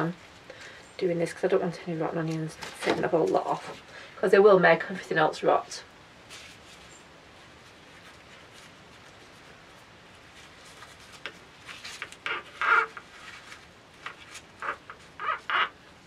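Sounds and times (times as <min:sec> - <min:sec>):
onion skins rustling and crackling: 0:01.2 - 0:04.1, 0:05.5 - 0:16.0.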